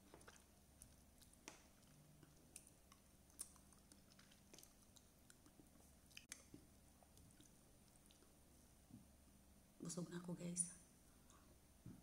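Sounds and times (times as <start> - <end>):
person chewing: 0.0 - 8.4.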